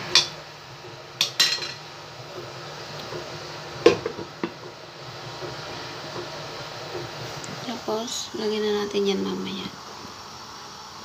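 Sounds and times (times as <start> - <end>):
pot lid clanking on pan: 1.2 - 1.9, 3.8 - 4.6.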